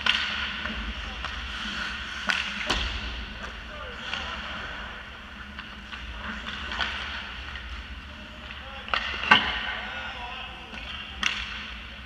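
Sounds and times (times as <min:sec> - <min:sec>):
hockey stick taps: 0:00.0 - 0:00.5, 0:10.8 - 0:11.6
sharp hockey stick clacks: 0:00.0 - 0:00.5, 0:10.8 - 0:11.7
skates scraping ice: 0:00.0 - 0:09.9.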